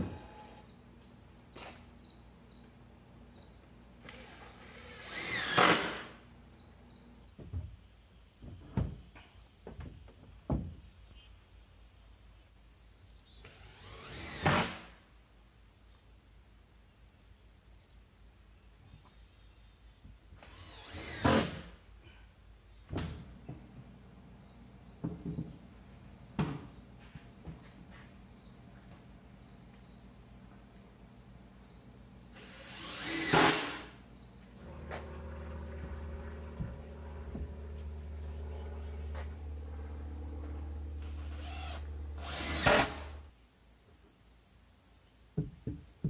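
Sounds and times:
cordless drill driving screws: 0:04.1 - 0:06.0, 0:13.5 - 0:14.8, 0:20.4 - 0:21.6, 0:32.4 - 0:33.9, 0:34.6 - 0:43.2
dull knocks: 0:45.4 - 0:46.0.

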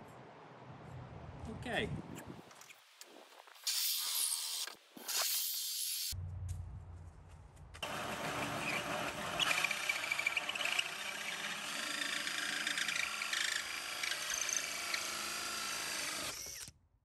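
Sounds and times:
hole saw cutting wood: 0:07.8 - 0:16.7.

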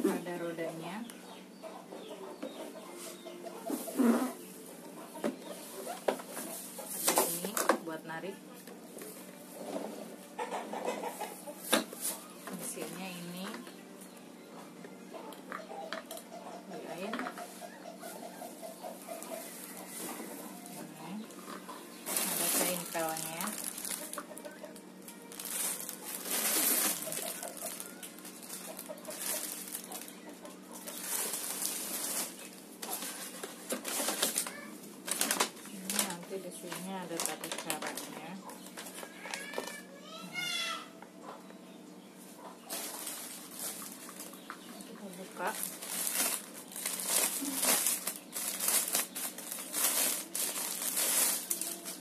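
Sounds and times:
plastic packaging crinkling: 0:18.9 - 0:21.0, 0:21.6 - 0:39.8, 0:42.7 - 0:52.0.

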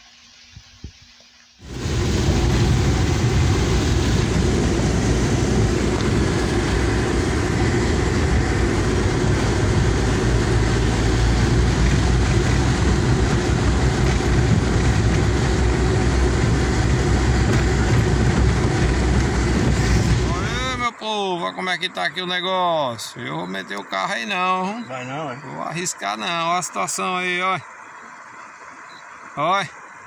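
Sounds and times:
heavy rain on car roof: 0:01.6 - 0:20.6
tyres and engine rumble: 0:01.6 - 0:30.0.

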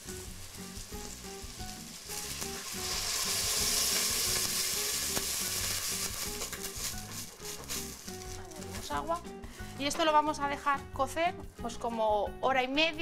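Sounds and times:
loud hiss of deglazing: 0:00.0 - 0:09.8
mushrooms sizzling in oil: 0:00.0 - 0:10.4
water poured into hot pot: 0:01.9 - 0:06.8.

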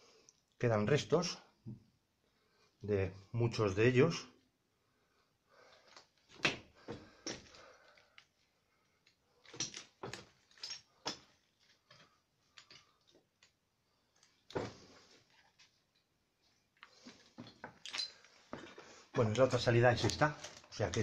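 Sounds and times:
footsteps on debris-strewn floor: 0:09.4 - 0:13.2, 0:16.8 - 0:21.0.

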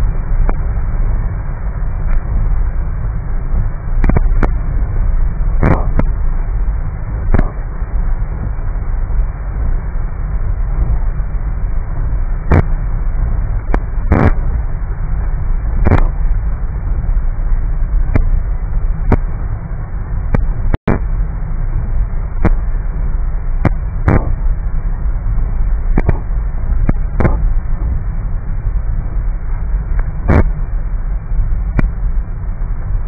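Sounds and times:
road and engine rumble: 0:00.0 - 0:33.0
sharp knocks: 0:26.0 - 0:26.3.

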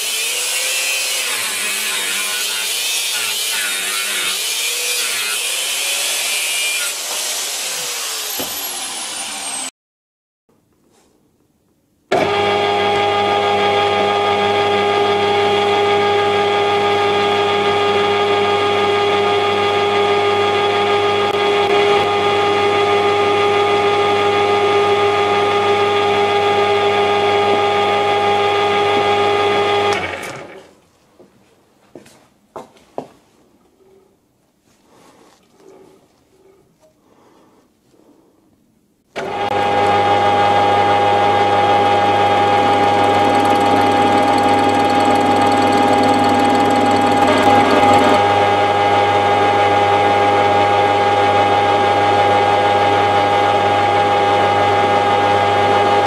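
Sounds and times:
angle grinder cutting aluminium: 0:00.0 - 0:09.7, 0:39.2 - 0:56.0
metal lathe whining: 0:39.2 - 0:48.9.

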